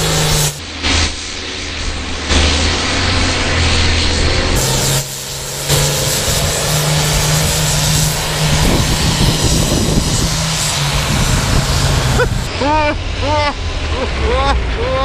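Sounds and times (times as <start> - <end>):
tractor diesel engine at full throttle: 0.0 - 0.6, 2.5 - 12.6.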